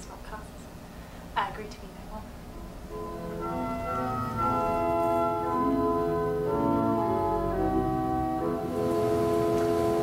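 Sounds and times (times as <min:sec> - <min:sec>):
organ playing slow chords: 0:02.8 - 0:10.0.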